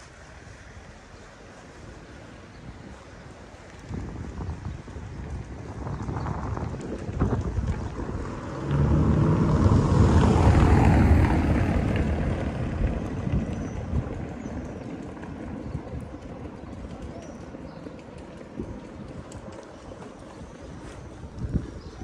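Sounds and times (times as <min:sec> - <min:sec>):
car driving over cobblestones: 0:05.4 - 0:16.9.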